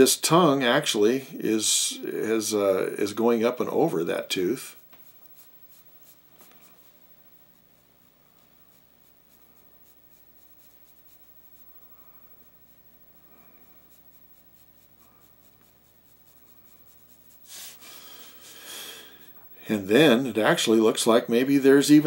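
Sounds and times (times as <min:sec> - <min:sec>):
pencil scratching on paper: 0:04.7 - 0:17.8.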